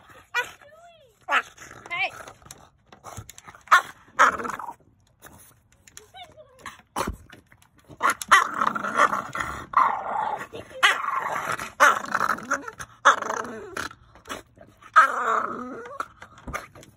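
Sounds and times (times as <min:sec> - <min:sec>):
dog growling: 0:08.0 - 0:16.9.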